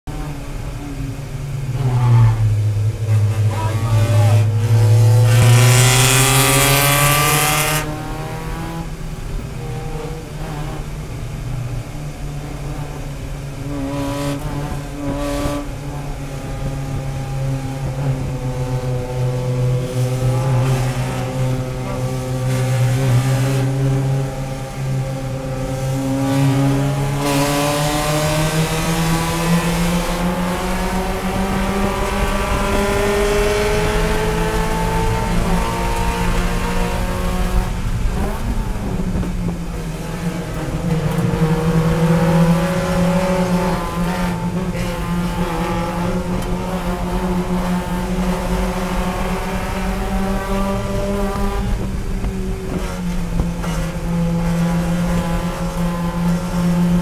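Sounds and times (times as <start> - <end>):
race car engine under throttle: 0.0 - 57.0.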